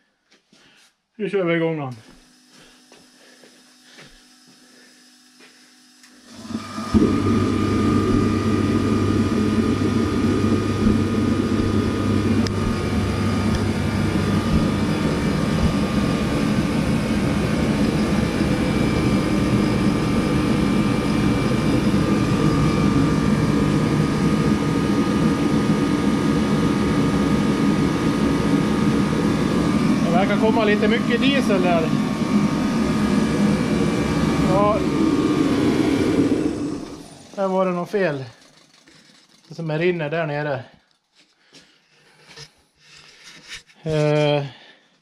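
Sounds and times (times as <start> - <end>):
heater fan and burner rushing: 2.1 - 44.7
low hum: 6.9 - 37.4
faint whine: 26.8 - 41.1.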